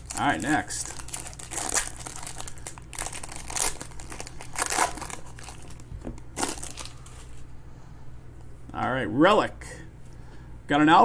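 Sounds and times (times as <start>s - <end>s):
foil wrapper crinkling: 0.0s - 7.4s.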